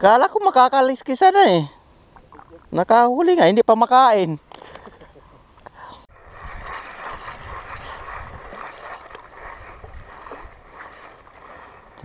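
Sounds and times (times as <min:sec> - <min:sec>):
seawater sloshing and lapping: 0:06.1 - 0:12.0
wind on microphone: 0:06.1 - 0:12.0
spinning reel whirring: 0:06.2 - 0:12.0.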